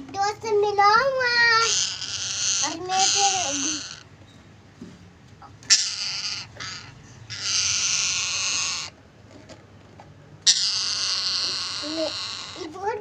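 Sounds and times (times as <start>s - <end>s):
parakeets screeching: 1.1s - 4.2s, 5.4s - 9.0s, 10.4s - 13.0s.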